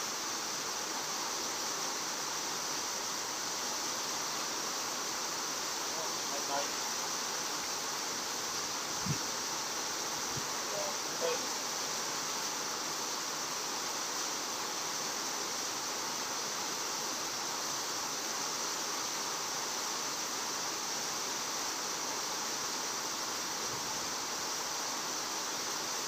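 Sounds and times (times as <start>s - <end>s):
steady outdoor hiss: 0.0s - 26.0s.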